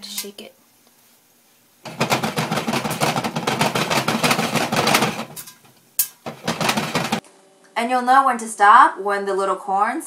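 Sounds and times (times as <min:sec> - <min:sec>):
popcorn popping in hot oil: 0:01.8 - 0:07.2.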